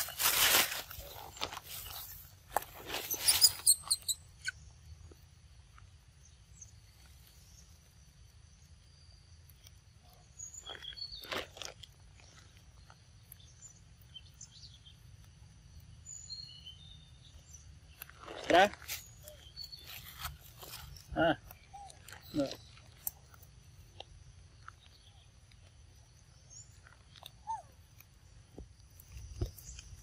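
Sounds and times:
monkey chewing mango: 0:19.4 - 0:30.0.

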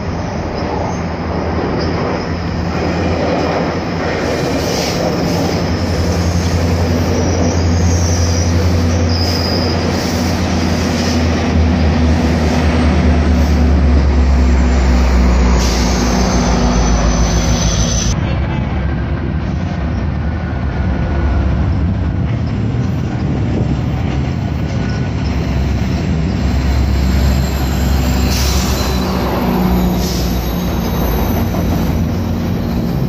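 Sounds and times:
diesel train engine drone: 0:00.0 - 0:33.0
train rolling past: 0:00.0 - 0:33.0
faint high wheel squeal: 0:06.3 - 0:10.2, 0:14.6 - 0:18.2, 0:24.9 - 0:31.4.

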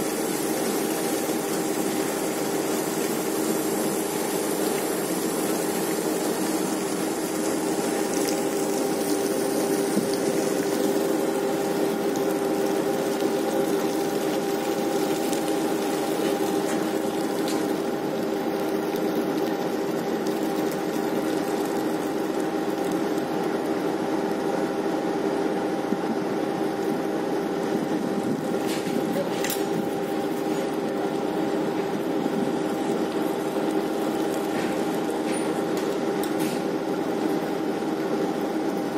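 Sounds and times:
water rushing alongside hull: 0:00.0 - 0:24.2
deck machinery hum: 0:00.0 - 0:38.9.

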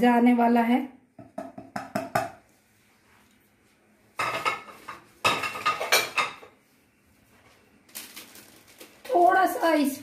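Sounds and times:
utensils and dishes clattering: 0:04.2 - 0:06.5.

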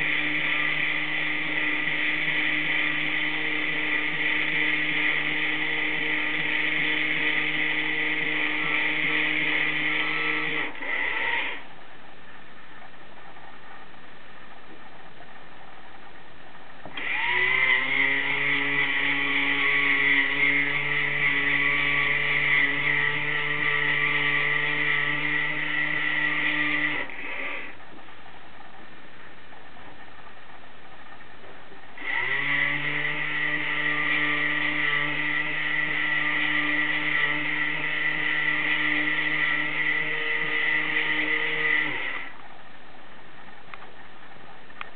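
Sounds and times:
small electric motor whirring: 0:00.0 - 0:11.7, 0:17.0 - 0:27.8, 0:32.0 - 0:42.4.

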